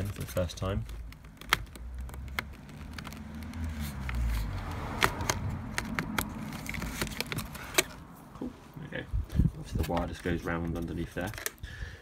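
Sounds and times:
sharp clicks and knocks: 0.0 - 8.0.

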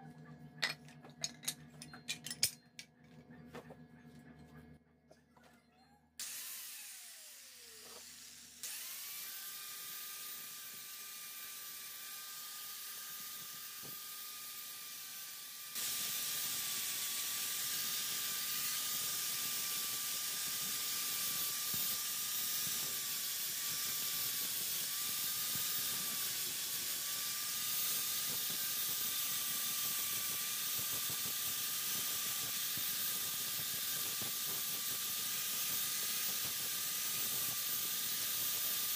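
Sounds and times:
angle grinder whining: 6.2 - 38.9.

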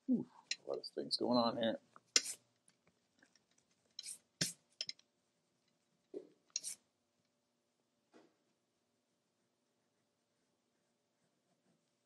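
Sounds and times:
colored pencil scratching on paper: 2.2 - 2.4, 6.6 - 6.8, 11.1 - 12.0.

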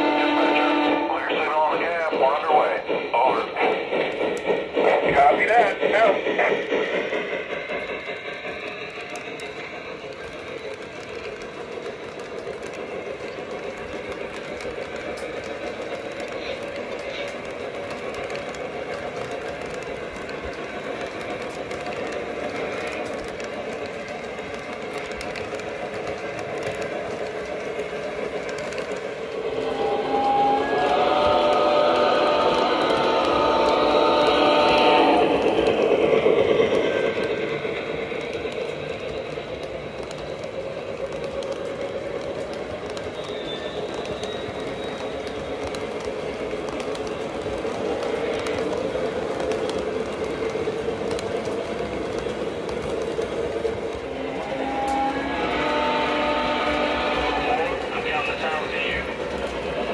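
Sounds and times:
model train cars rolling on track: 0.0 - 59.9
faint high wheel squeal: 43.0 - 45.5.

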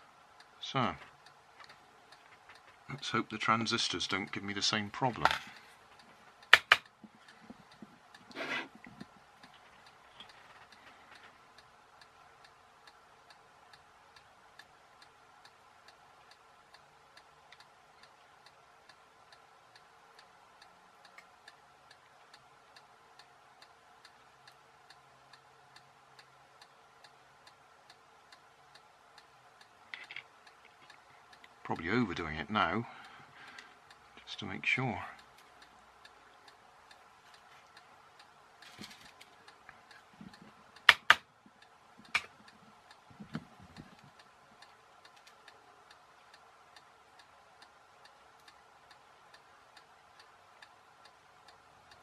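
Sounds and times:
faint steady hum: 0.0 - 52.0
faint steady ticking: 0.0 - 52.0
sharp clicks: 5.0 - 8.3, 35.2 - 45.6.

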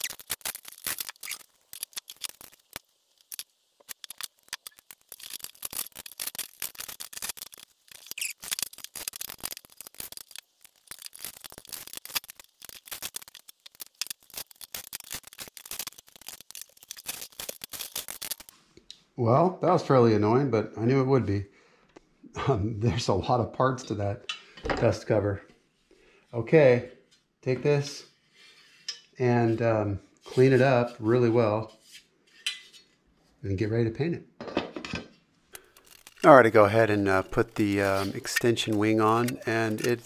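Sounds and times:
clattering screws and metal parts: 0.0 - 18.5, 35.6 - 40.0.

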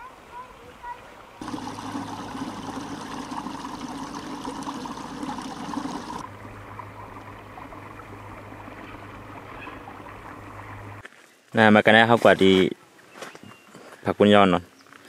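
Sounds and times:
stream water trickling: 0.0 - 11.0.

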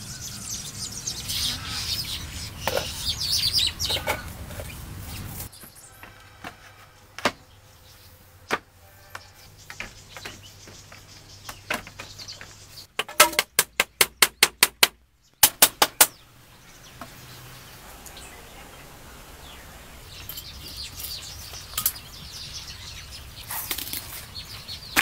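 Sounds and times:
bamboo poles knocking: 8.5 - 16.1
hammer striking bamboo: 13.0 - 16.2.

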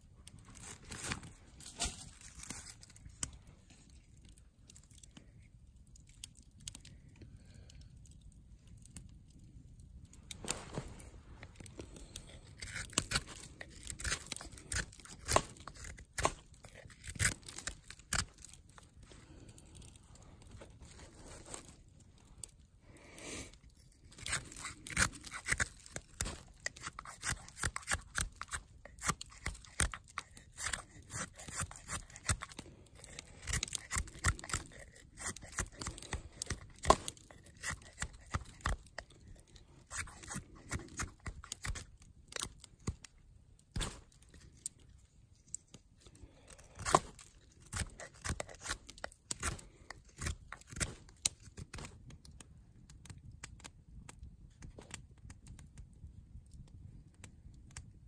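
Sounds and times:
knife whittling wood: 24.2 - 39.0, 39.9 - 41.9.

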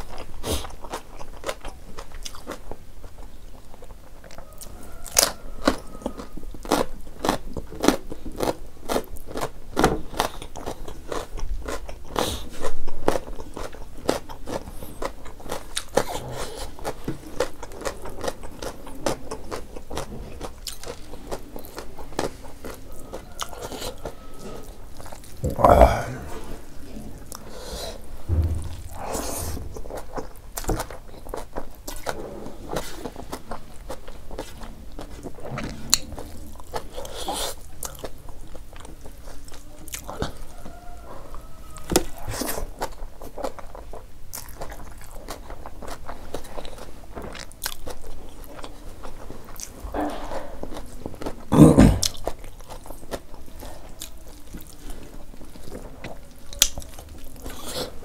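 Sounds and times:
person chewing food: 0.0 - 58.0
loud sudden sound: 28.3 - 30.2.

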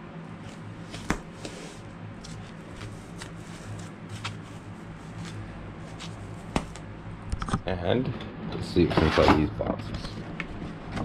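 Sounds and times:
steady low hum: 0.0 - 11.0
hands rustling foam packaging: 0.5 - 6.9.

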